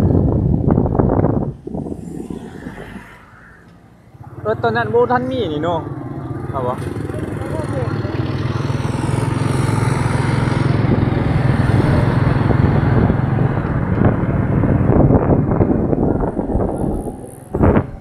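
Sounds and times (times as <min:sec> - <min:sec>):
wind noise on microphone: 0:00.0 - 0:05.5, 0:08.3 - 0:18.0
road and wind noise: 0:00.0 - 0:18.0
small motorcycle engine running: 0:04.2 - 0:18.0.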